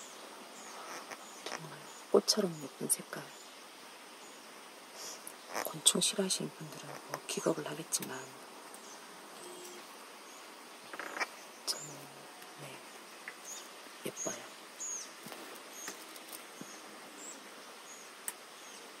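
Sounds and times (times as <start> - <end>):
outdoor background hiss: 0.0 - 19.0
faint high-pitched chirps: 8.8 - 12.8.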